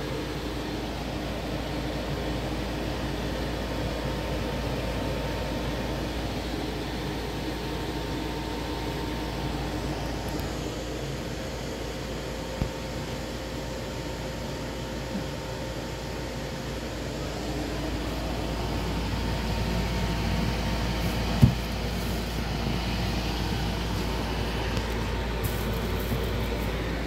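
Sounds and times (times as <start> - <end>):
mechanical hum with low rumble: 0.0 - 27.0
loud thump: 21.4 - 21.7.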